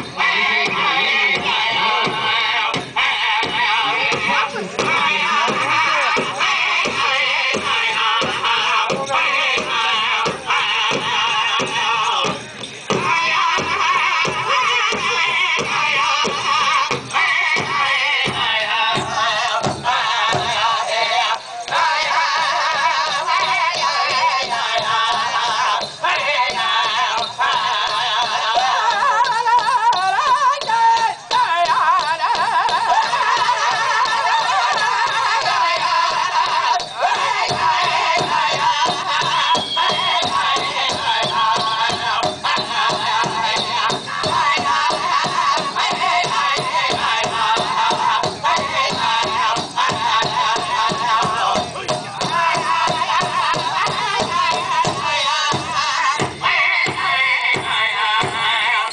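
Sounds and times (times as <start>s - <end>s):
big drum beating in unison: 0.0s - 58.6s
high wavering group singing: 0.0s - 58.9s.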